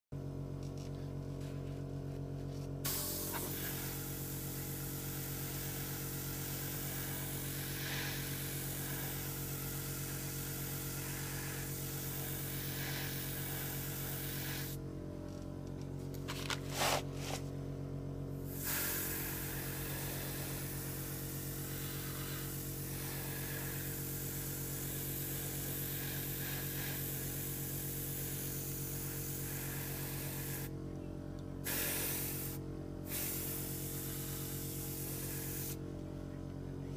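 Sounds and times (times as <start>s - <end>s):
airbrush spraying hiss: 2.8s - 14.8s, 18.4s - 30.7s, 31.6s - 35.8s.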